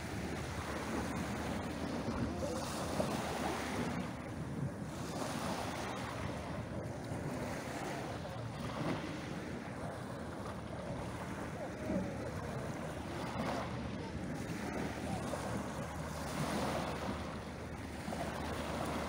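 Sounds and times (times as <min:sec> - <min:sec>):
wind rumbling on microphone: 0:00.0 - 0:19.0
waves washing over pebbles: 0:04.8 - 0:19.0.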